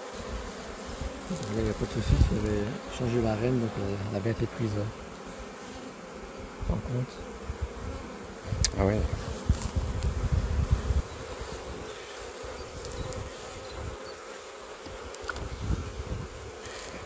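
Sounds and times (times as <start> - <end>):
bees buzzing: 0.0 - 17.0.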